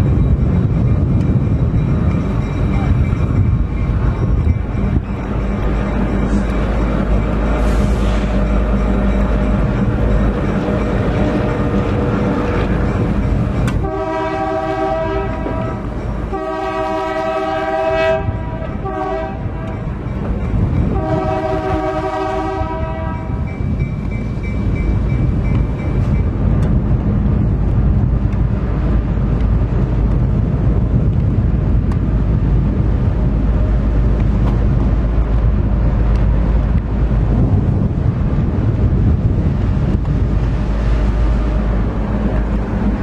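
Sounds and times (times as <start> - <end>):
train rumbling on rails: 0.0 - 43.0
locomotive air horn blasts: 13.8 - 19.9, 20.9 - 23.4.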